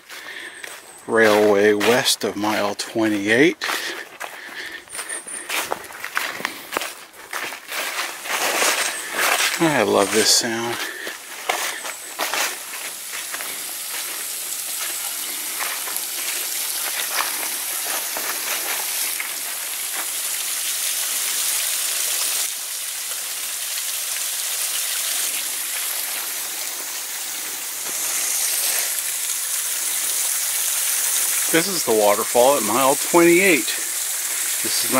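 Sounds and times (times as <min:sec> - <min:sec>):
small waterfall rushing: 0:07.4 - 0:34.9.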